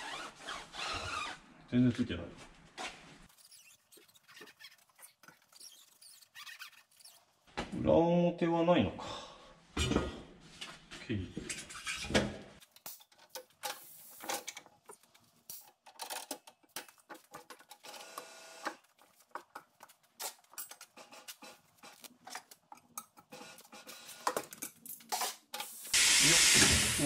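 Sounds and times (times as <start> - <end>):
loud air hiss: 25.9 - 27.0.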